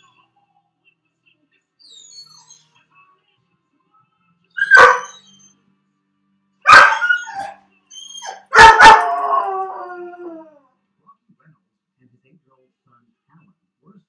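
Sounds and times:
dog barking: 4.6s - 5.2s, 6.7s - 7.6s, 8.3s - 9.2s
dog howling: 4.6s - 5.5s, 6.7s - 10.7s.

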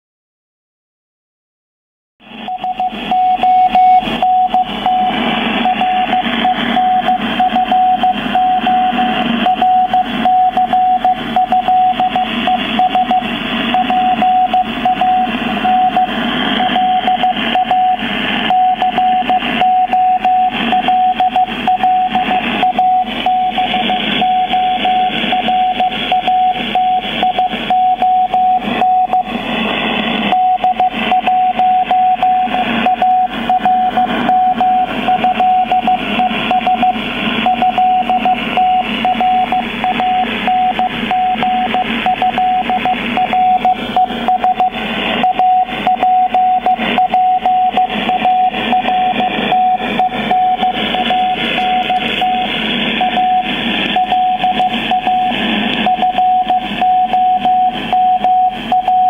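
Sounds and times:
morse code beeps: 2.4s - 29.4s, 30.2s - 59.0s
radio hiss and static: 3.8s - 9.4s, 47.8s - 55.9s.

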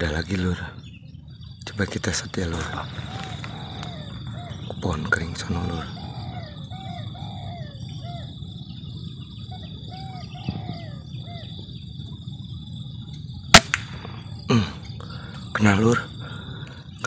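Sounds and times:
bird calling: 0.0s - 17.0s
high insect drone: 0.0s - 17.0s
air rifle shot: 13.5s - 14.4s.

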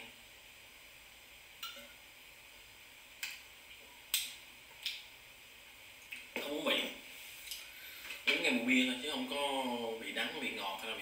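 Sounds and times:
mouth clicks and lip smacks: 3.2s - 5.1s, 6.0s - 6.4s.

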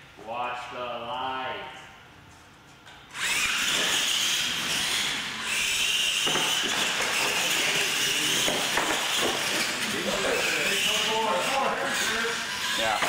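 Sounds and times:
electric motors whining: 3.1s - 13.0s.

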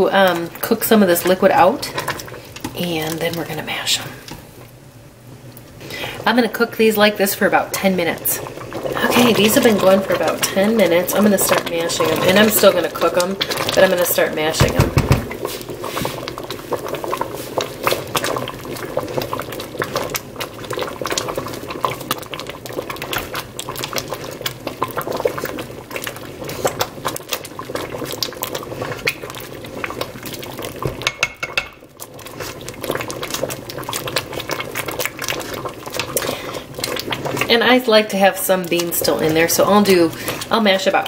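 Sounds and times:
beans squelching: 32.0s - 41.0s.

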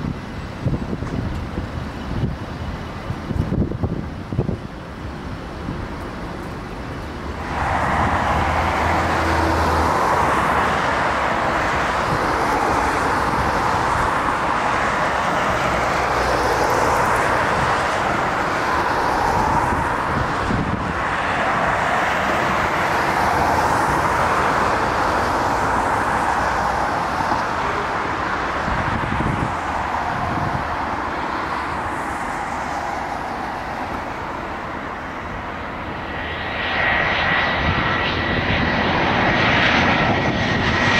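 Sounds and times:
jet airliner passing overhead: 0.0s - 40.9s.

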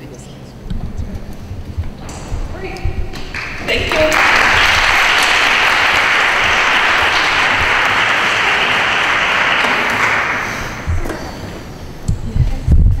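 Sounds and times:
audience applauding: 3.2s - 11.7s.

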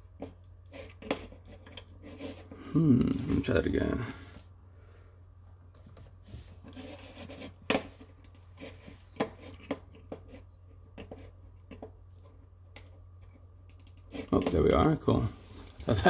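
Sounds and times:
low steady hum: 0.0s - 16.0s
laptop keys clicking: 13.7s - 14.1s.

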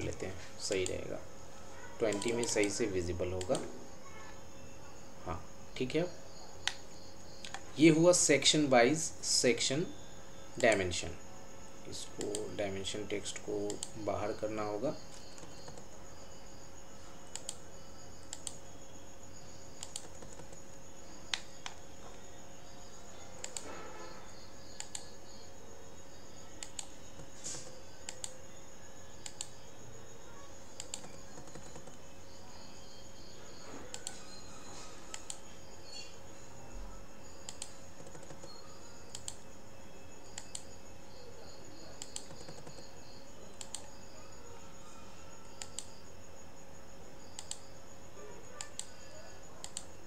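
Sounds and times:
faint high pulsing chirp: 0.0s - 50.0s
mouse and keyboard clicks: 30.8s - 32.0s, 42.0s - 42.9s, 43.6s - 43.9s, 45.6s - 45.9s, 49.6s - 49.9s.

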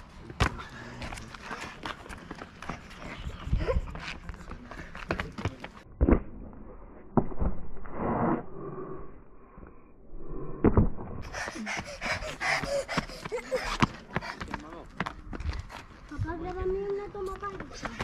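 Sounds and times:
sneakers running on pavement: 0.4s - 5.8s, 11.4s - 18.0s.

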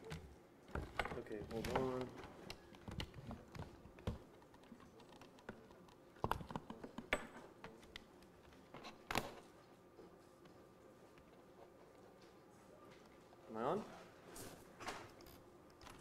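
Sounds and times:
laptop keyboard typing: 1.5s - 7.1s.

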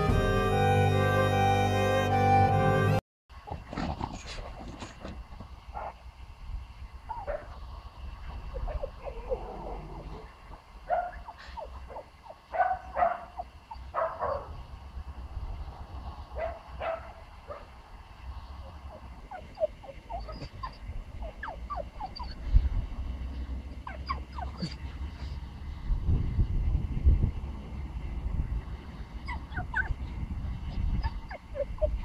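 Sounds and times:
puppy yipping and barking: 10.9s - 14.5s, 16.4s - 17.6s, 18.9s - 22.4s, 23.8s - 24.8s, 29.2s - 30.0s, 31.0s - 32.0s
puppy whining: 18.8s - 22.5s, 23.8s - 24.9s, 29.2s - 30.0s, 30.8s - 32.0s.

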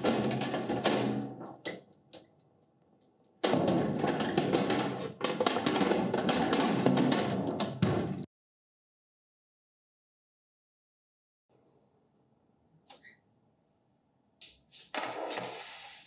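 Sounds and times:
oven rack and baking tray clattering: 0.0s - 1.8s.

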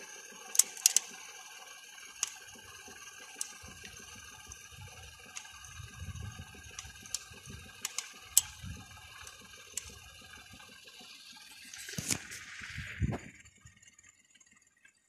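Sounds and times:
camera handling noise: 11.8s - 12.4s.

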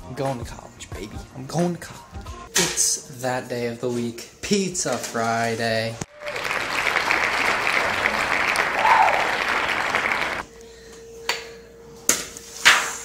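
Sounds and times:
crowd applause and cheering: 6.1s - 10.4s.

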